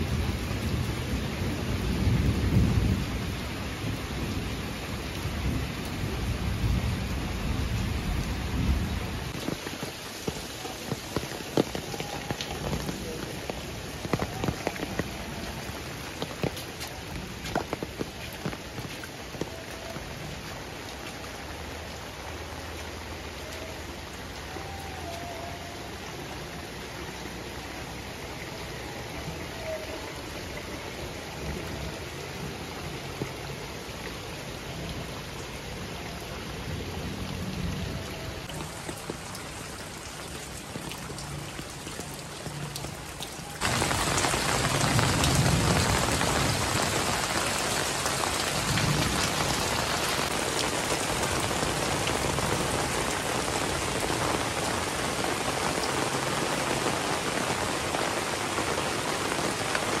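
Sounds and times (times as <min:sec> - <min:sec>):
heavy rain falling: 0:00.0 - 1:00.0
thunder rumbles: 0:43.6 - 0:53.2.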